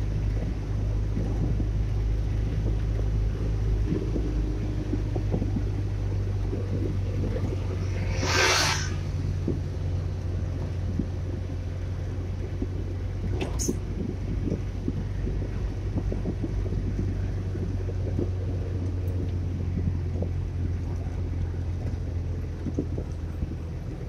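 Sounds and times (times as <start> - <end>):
engine and road rumble: 0.0 - 24.0
brief hiss: 7.9 - 9.1.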